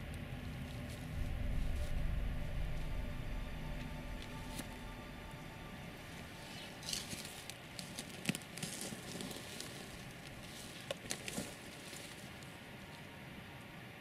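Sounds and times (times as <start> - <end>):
footsteps crunching through dry grass: 0.5 - 12.9
twigs snapping: 6.4 - 12.5.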